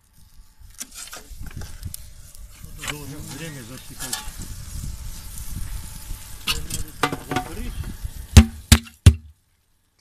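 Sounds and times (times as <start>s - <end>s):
meat sizzling over coals: 0.0s - 10.0s
sharp loud knocks: 8.4s - 9.3s.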